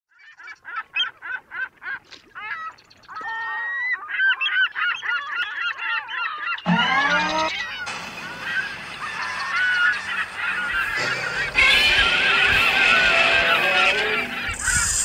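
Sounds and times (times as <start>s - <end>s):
geese honking: 3.2s - 15.0s.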